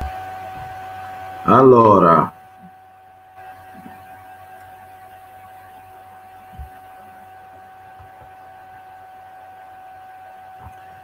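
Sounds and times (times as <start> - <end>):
thin constant whine: 0.0 - 11.0
soft low thump: 6.5 - 6.8.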